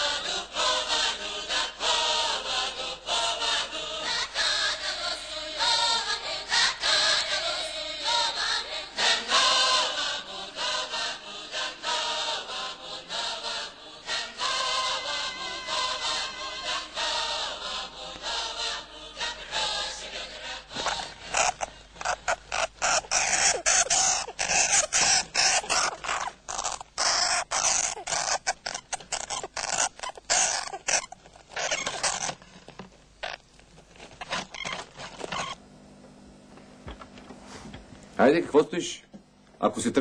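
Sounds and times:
choral music: 0.0 - 21.4
rodent scratching in cage: 20.8 - 35.6.

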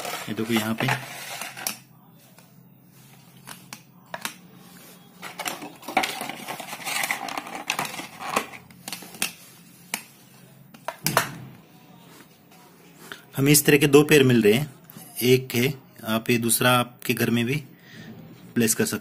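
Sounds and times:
rustling and scraping: 0.0 - 3.7, 4.6 - 11.0.

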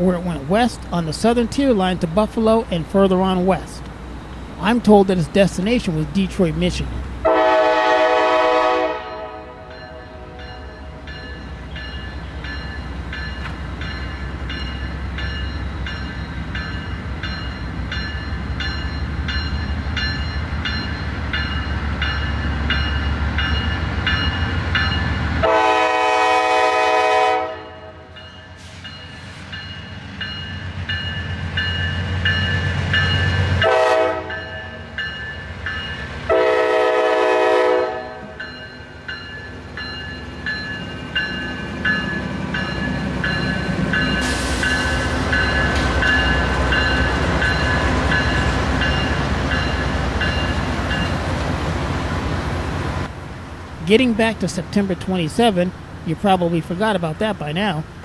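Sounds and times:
diesel locomotive engine running: 0.0 - 58.0
locomotive air horn blasts: 7.2 - 10.4, 25.4 - 28.1, 33.6 - 34.6, 36.3 - 38.4
locomotive bell ringing: 9.0 - 25.3, 27.9 - 36.6, 37.8 - 51.3.

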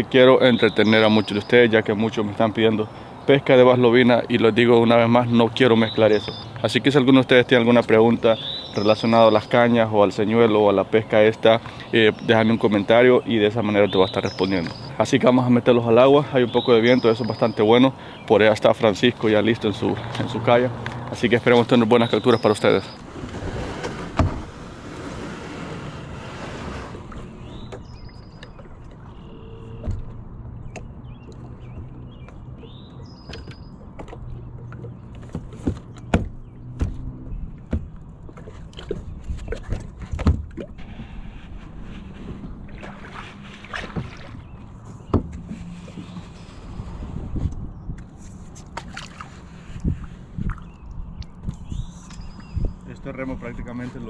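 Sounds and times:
paddle knocking against kayak hull: 29.8 - 40.7, 42.7 - 46.2
water splashing: 37.0 - 47.0, 48.6 - 51.4.

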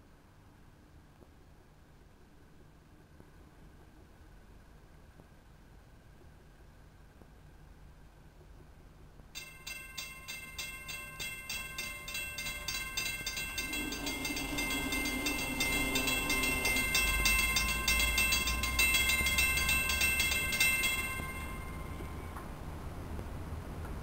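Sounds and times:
crossing warning bell ringing: 9.4 - 22.5
train rumble: 9.4 - 24.0.

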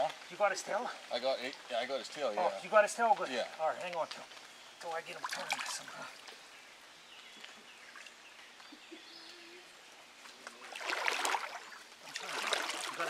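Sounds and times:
faint stream trickle: 0.0 - 13.0
water splashing and sloshing: 3.8 - 6.4, 10.0 - 13.0.

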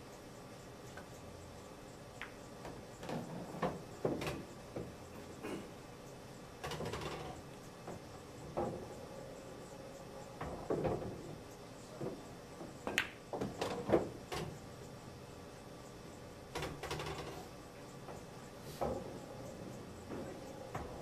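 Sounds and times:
billiard balls clicking: 2.2 - 5.0, 12.6 - 14.6.

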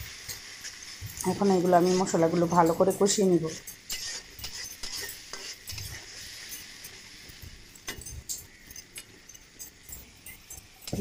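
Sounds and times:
paste sizzling in oil: 0.0 - 11.0
metal spatula scraping pan: 3.4 - 11.0.

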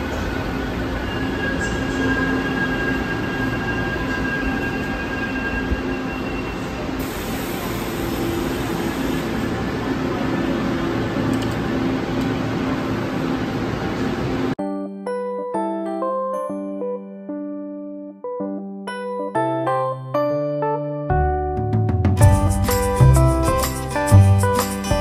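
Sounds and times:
train rumbling on rails: 0.0 - 14.6
piano music: 14.6 - 25.0.

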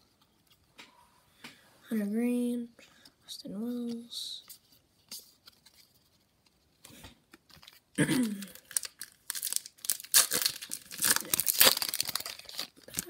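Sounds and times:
foil wrapper crinkling and tearing: 7.4 - 13.0.

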